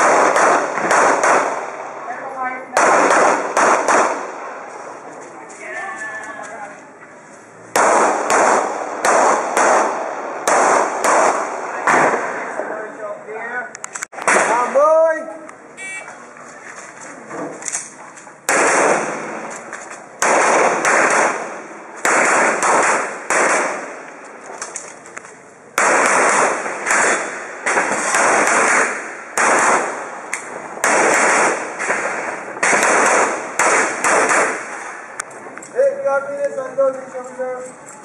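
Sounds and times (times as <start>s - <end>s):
pistol shots with echo: 0.0s - 2.0s, 2.7s - 4.7s, 7.7s - 12.6s, 18.5s - 19.5s, 20.2s - 24.1s, 25.8s - 35.1s.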